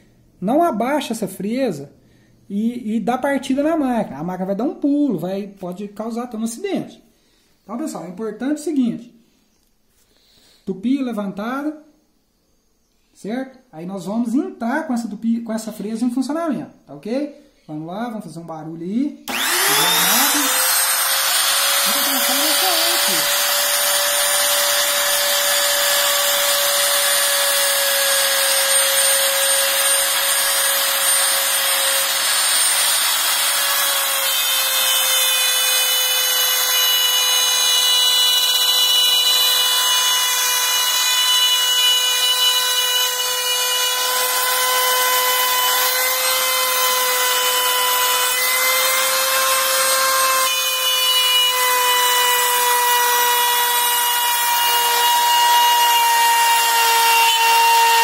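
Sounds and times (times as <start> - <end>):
router high whine cutting: 19.3 - 58.0.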